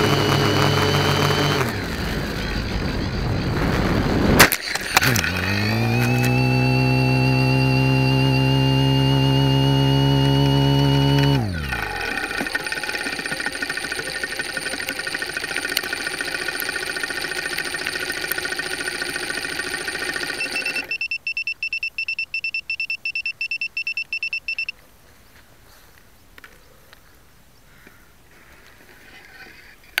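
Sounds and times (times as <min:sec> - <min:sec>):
high-pitched electronic whine: 0:00.0 - 0:21.0
rapid high beeping: 0:10.4 - 0:24.7.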